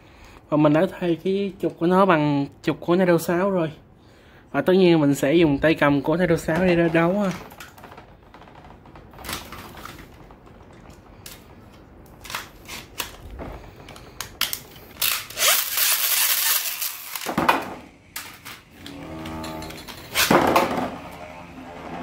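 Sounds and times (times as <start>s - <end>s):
plastic spinning tops clattering: 9.2s - 18.7s.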